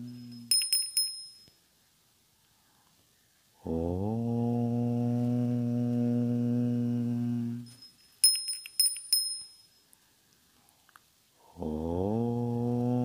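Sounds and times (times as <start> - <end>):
small bell ringing: 0.0 - 1.6, 7.6 - 9.9
deep voice chanting: 3.6 - 7.7, 11.4 - 13.0.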